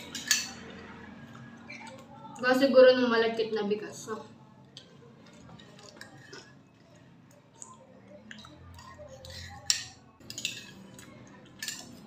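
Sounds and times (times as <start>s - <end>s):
spoons clinking on ceramic: 0.0s - 0.9s, 8.4s - 12.0s.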